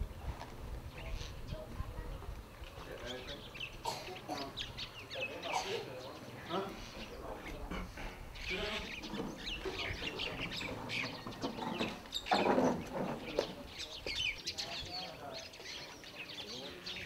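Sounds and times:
birds chirping: 0:00.0 - 0:17.0
chickens clucking: 0:03.0 - 0:15.2.

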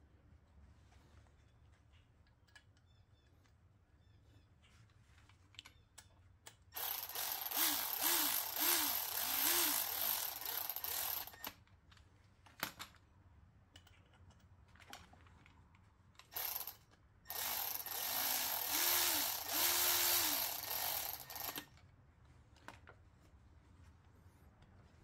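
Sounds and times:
cordless ratchet whirring: 0:06.8 - 0:11.5, 0:16.3 - 0:21.7.

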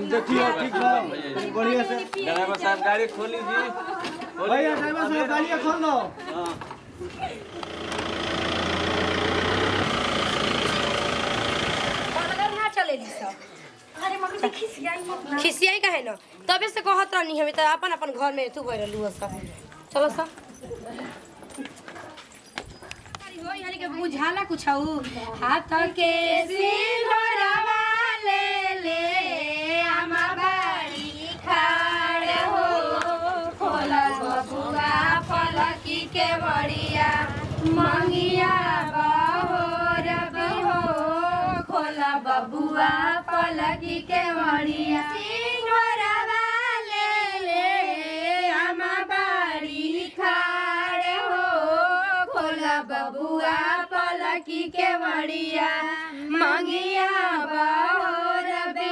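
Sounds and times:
women singing folk song: 0:24.1 - 0:58.9.

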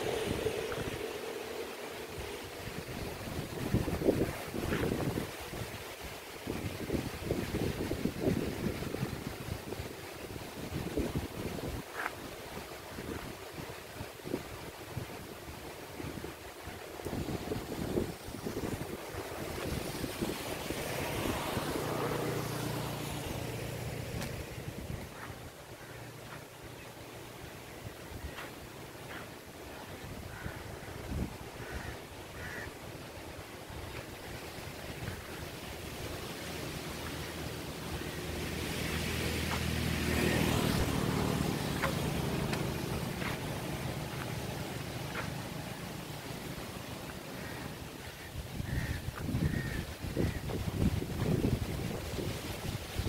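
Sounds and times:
motor engine passing by: 0:00.0 - 0:05.2, 0:17.9 - 0:27.6, 0:35.8 - 0:52.8
wind rumbling on microphone: 0:00.0 - 0:53.0.

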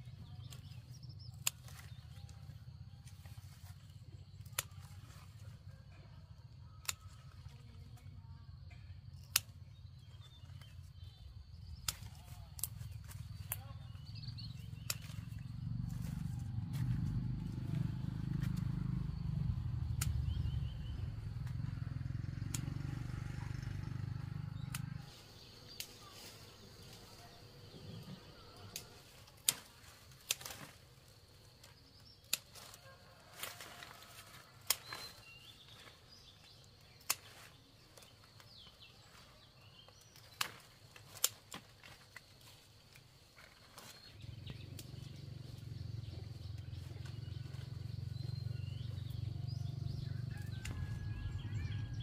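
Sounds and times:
low steady rumble: 0:13.0 - 0:29.0.

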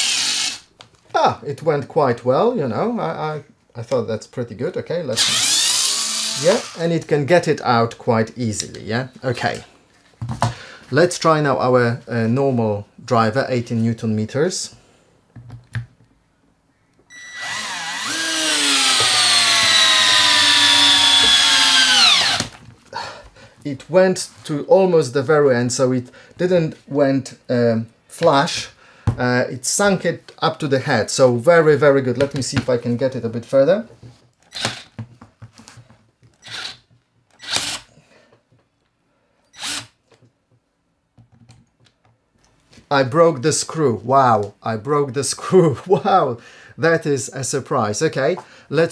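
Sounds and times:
cordless screwdriver whining: 0:00.0 - 0:00.6, 0:05.2 - 0:06.8, 0:17.1 - 0:22.6, 0:34.4 - 0:34.9, 0:36.4 - 0:37.9, 0:39.5 - 0:40.0.

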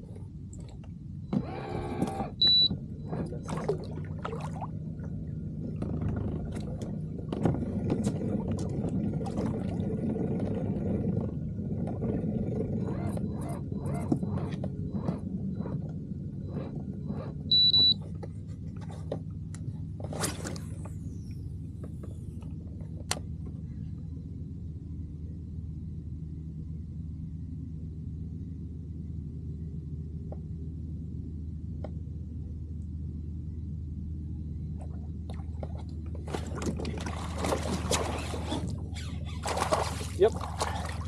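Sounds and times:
electric trolling motor hum: 0:01.2 - 0:17.9.

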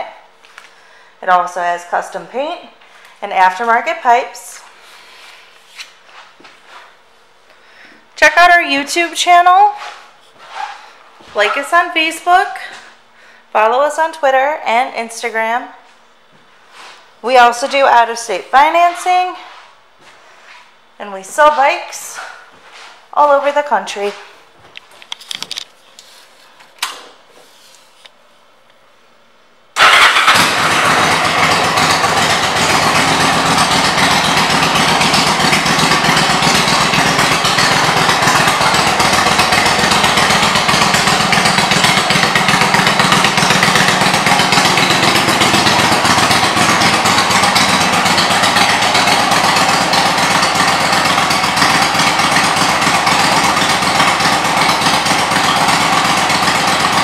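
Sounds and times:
motorcycle engine running: 0:17.4 - 0:20.6, 0:29.8 - 0:57.0.

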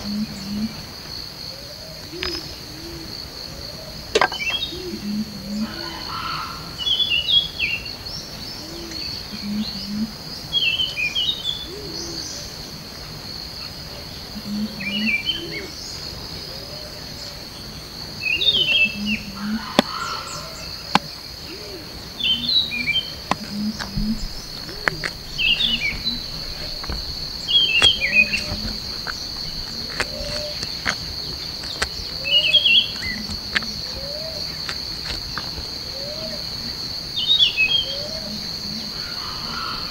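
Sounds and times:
insect drone: 0:00.0 - 0:39.9
chirping bird calls: 0:18.3 - 0:35.2.

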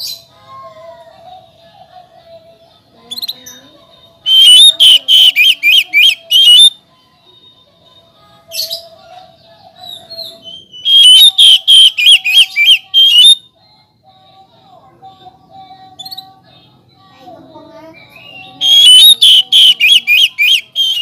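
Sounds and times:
bird singing whistled notes: 0:03.1 - 0:03.6, 0:04.3 - 0:06.8, 0:09.8 - 0:13.5, 0:18.2 - 0:21.0.

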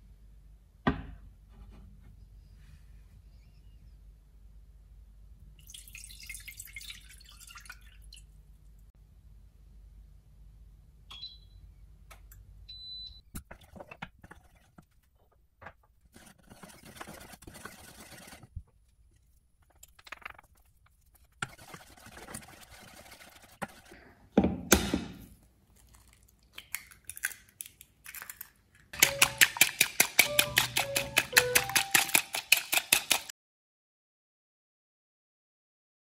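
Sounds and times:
whisking rattle: 0:16.2 - 0:18.6, 0:19.6 - 0:24.0, 0:29.0 - 0:33.3
eggs cracking: 0:16.3 - 0:24.0, 0:25.4 - 0:33.3.

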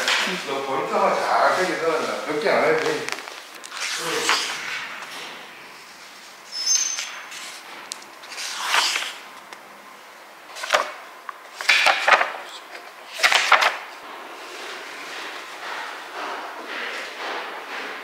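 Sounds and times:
textbook pages turning: 0:01.0 - 0:04.7, 0:08.2 - 0:09.6, 0:10.5 - 0:13.9.

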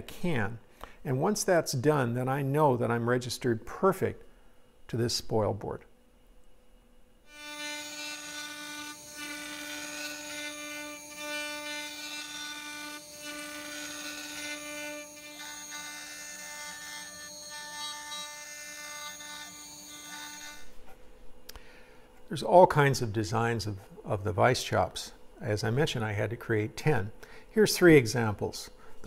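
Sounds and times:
router bit carving wood: 0:07.3 - 0:20.7
router spindle whining: 0:07.3 - 0:20.7.

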